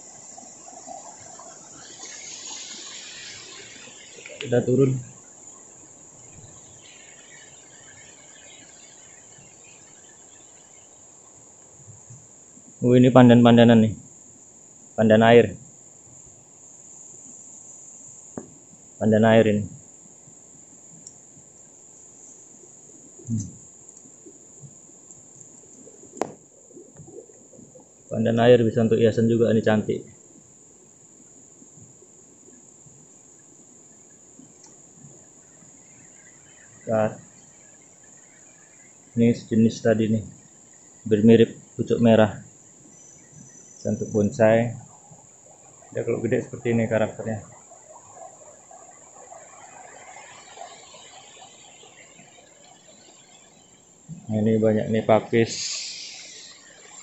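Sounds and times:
faint low rushing: 0:00.0 - 0:11.0, 0:43.6 - 0:57.0
insects chirping: 0:00.0 - 0:57.0
insects droning: 0:00.0 - 0:57.0.

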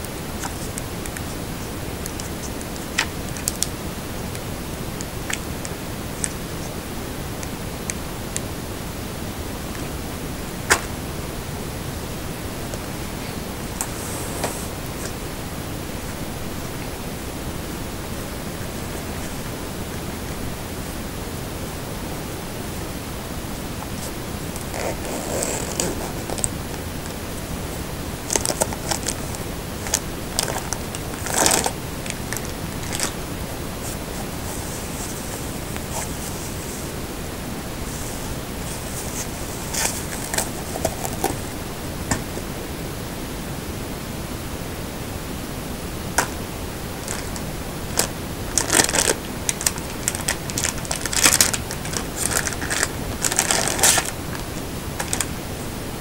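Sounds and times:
plastic wrapping crinkling: 0:00.0 - 0:06.8, 0:23.8 - 0:37.0, 0:37.8 - 0:42.4, 0:47.0 - 0:55.4
steady hiss: 0:00.0 - 0:56.0.

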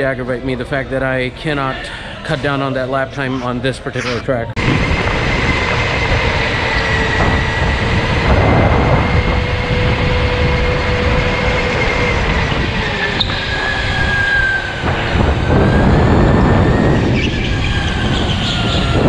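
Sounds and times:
constant rushing noise: 0:02.2 - 0:19.0
electric motor whining: 0:04.0 - 0:19.0.

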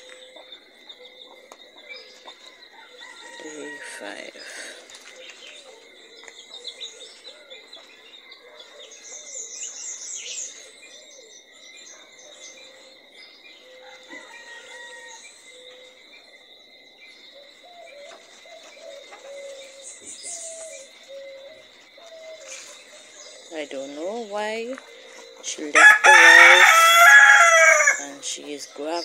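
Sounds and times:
high insect drone: 0:09.2 - 0:29.0.

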